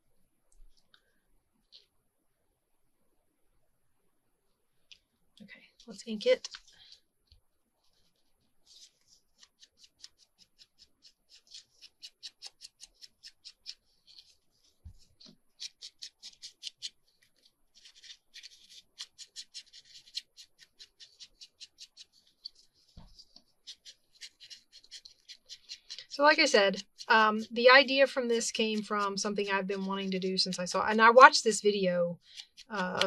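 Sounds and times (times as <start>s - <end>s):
foam tool rubbing on paper: 7.8s - 27.5s.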